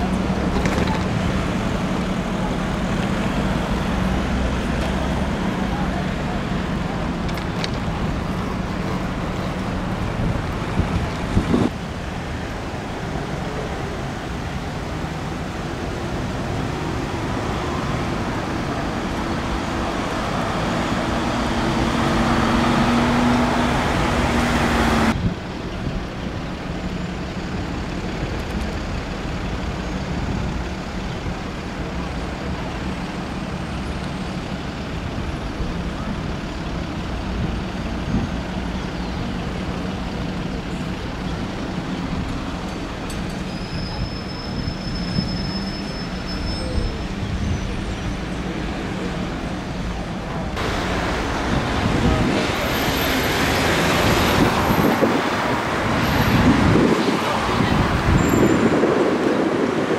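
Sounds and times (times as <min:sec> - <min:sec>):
background traffic: 0:00.0 - 0:59.9
heavy vehicle engine: 0:00.0 - 0:59.9.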